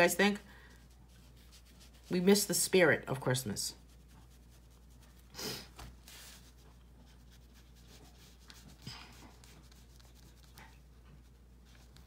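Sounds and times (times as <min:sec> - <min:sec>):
marker scratching on paper: 0:00.8 - 0:02.5, 0:03.8 - 0:05.3, 0:06.1 - 0:12.0
paper rustle: 0:05.6 - 0:06.7.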